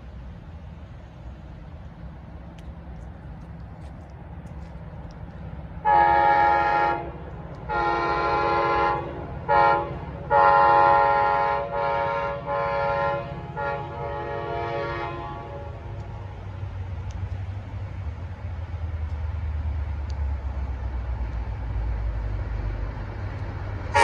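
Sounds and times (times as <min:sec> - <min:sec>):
low train rumble: 0:00.0 - 0:24.0
locomotive air horn blasts: 0:05.8 - 0:16.0.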